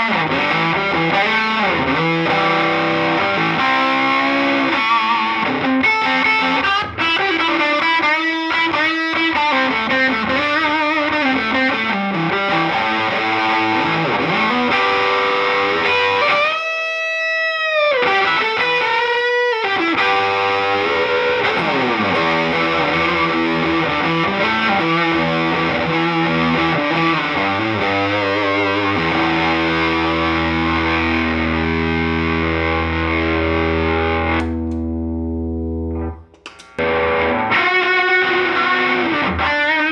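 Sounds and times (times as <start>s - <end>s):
overdriven electric guitar lead: 0.0s - 39.9s.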